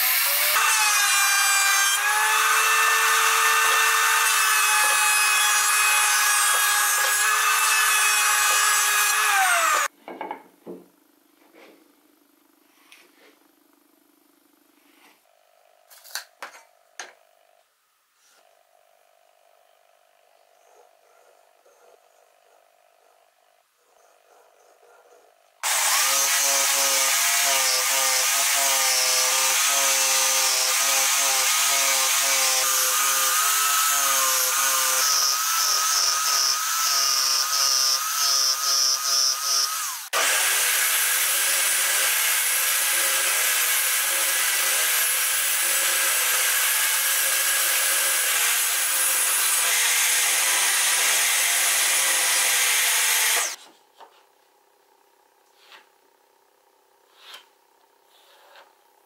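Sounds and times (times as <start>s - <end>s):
jigsaw cutting wood: 0.0s - 9.9s, 25.6s - 53.6s
table saw running: 0.0s - 9.9s, 25.6s - 53.6s.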